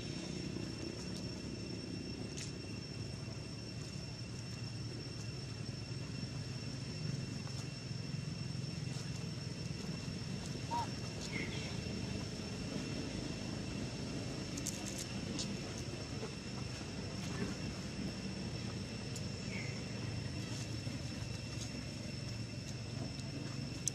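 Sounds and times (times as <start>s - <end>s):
constant low rumble: 0.0s - 23.9s
thin high whine: 0.0s - 23.9s.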